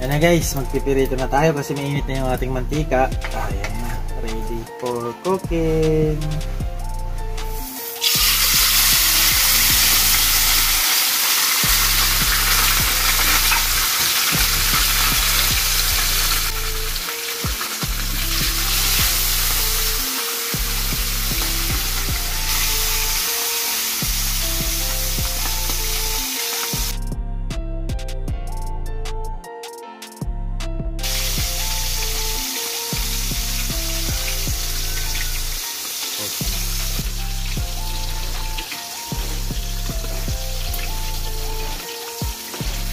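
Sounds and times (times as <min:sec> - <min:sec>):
background music with bass line: 0:00.0 - 0:42.9
fish frying in oil: 0:07.7 - 0:27.0, 0:31.0 - 0:42.9.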